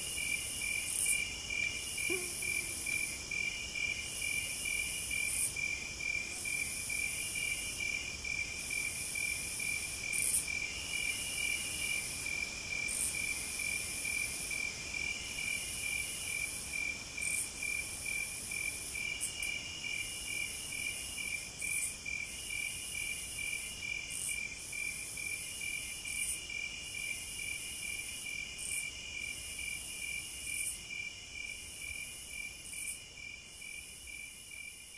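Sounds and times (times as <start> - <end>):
insect buzzing song: 0.0 - 8.0
crickets trilling: 0.0 - 34.9.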